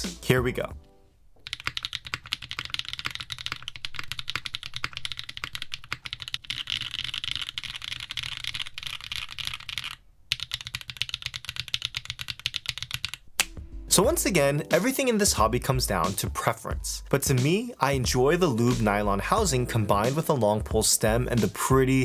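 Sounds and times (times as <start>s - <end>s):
fast typing on mechanical keyboard: 1.4s - 13.3s.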